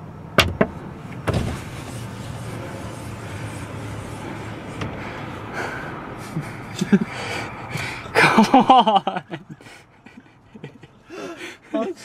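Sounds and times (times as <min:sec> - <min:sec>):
dull thump: 0:00.4 - 0:01.7.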